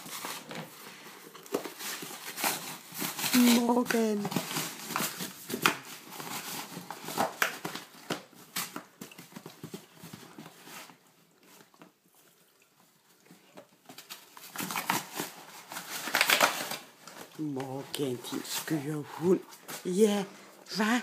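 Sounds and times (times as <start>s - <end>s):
dog tearing cardboard: 0.0s - 11.0s, 13.9s - 17.3s.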